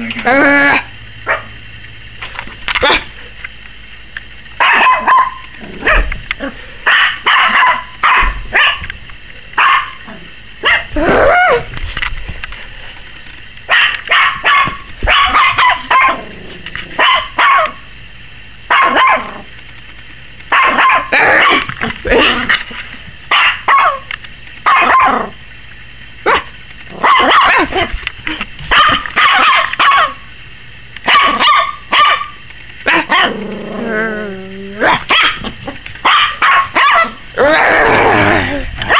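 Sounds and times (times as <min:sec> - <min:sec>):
puppy barking high-pitched: 0:00.7 - 0:01.6, 0:04.6 - 0:06.1, 0:06.8 - 0:08.9, 0:09.6 - 0:11.7, 0:13.7 - 0:16.3, 0:17.0 - 0:17.8, 0:18.7 - 0:19.4, 0:20.5 - 0:22.4, 0:23.3 - 0:25.4, 0:26.2 - 0:27.9, 0:28.7 - 0:30.3, 0:31.0 - 0:33.4, 0:34.8 - 0:37.5.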